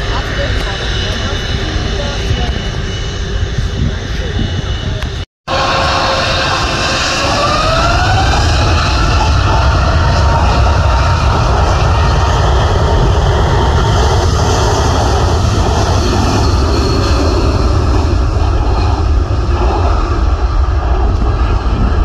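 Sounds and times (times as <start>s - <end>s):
jet engine noise: 0.0s - 22.0s.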